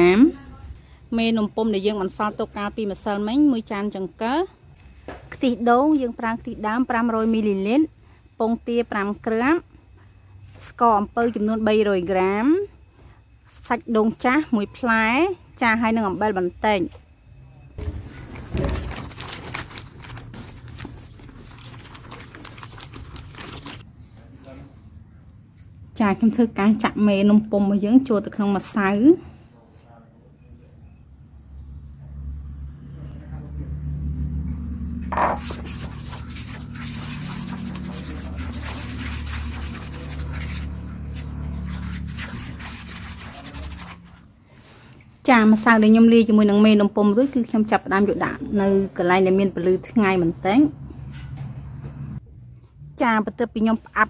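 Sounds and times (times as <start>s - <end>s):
plastic bag crinkling: 17.8s - 23.8s
spatula scraping metal bowl: 35.1s - 44.3s.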